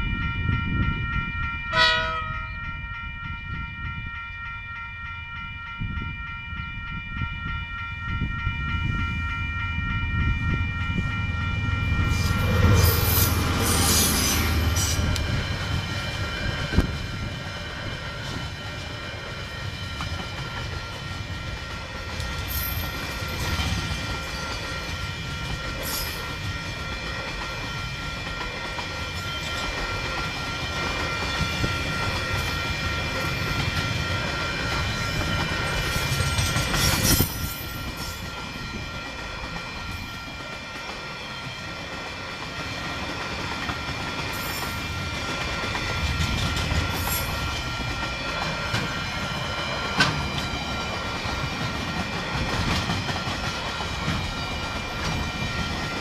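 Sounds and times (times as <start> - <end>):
level crossing alarm bells: 0.0 - 56.0
train horn blast: 1.7 - 2.6
train wheels clattering: 12.3 - 56.0.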